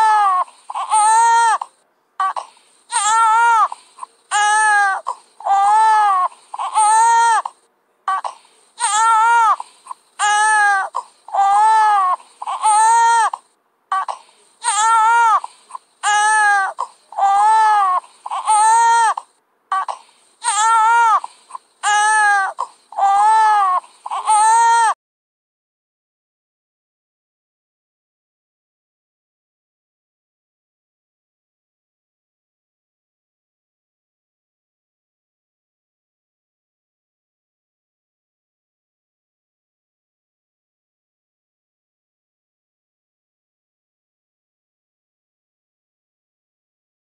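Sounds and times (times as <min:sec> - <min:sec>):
infant crying: 0:00.0 - 0:25.0.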